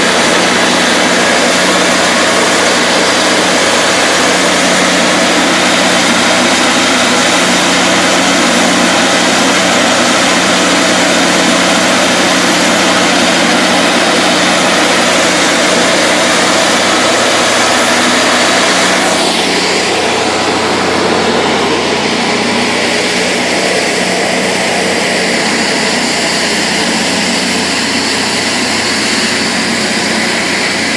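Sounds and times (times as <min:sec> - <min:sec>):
band blade sawing log: 0:00.0 - 0:30.9
bandsaw mill engine droning: 0:00.0 - 0:30.9.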